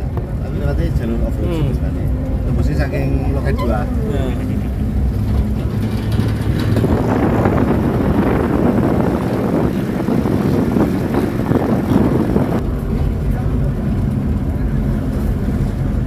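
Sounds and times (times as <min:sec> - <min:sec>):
car engine running: 0:00.0 - 0:16.0
road rumble: 0:00.0 - 0:16.0
wind on microphone: 0:03.6 - 0:16.0.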